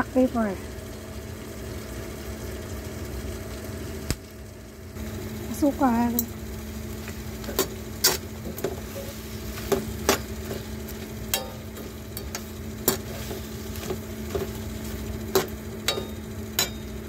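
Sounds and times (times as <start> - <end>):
sauce sizzling: 0.9 - 17.0
metal spoon clinking against pan: 11.3 - 14.5, 15.3 - 17.0.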